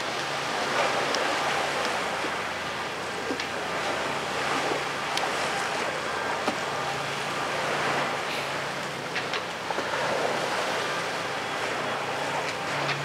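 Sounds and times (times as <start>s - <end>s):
choppy water washing: 0.0s - 13.0s
ferry engines humming: 0.0s - 13.0s
wind: 0.0s - 13.0s.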